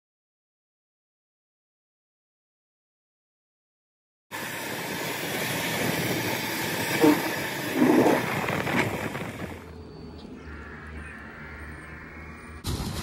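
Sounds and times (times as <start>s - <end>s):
wind rushing over microphone: 4.4s - 9.8s.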